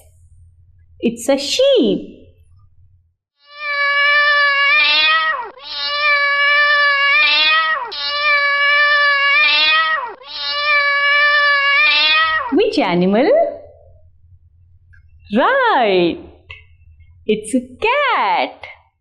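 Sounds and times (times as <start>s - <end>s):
cat meowing: 3.4s - 12.6s.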